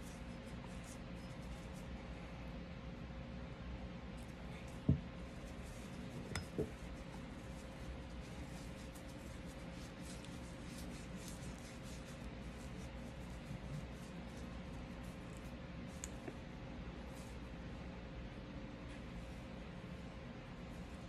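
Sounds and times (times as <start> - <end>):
faint steady hum: 0.0 - 21.0
cloth rubbing on metal: 5.3 - 15.4.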